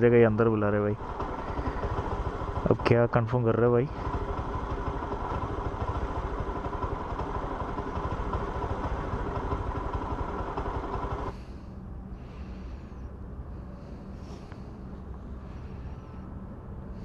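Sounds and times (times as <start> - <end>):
motorcycle engine idling: 0.0 - 11.6.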